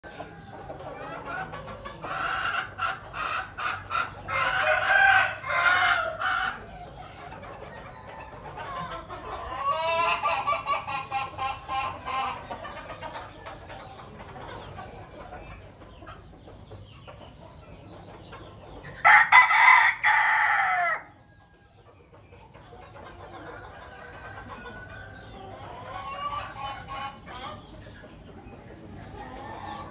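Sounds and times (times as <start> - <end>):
chickens clucking: 0.0 - 29.9
rooster crowing: 19.0 - 21.1.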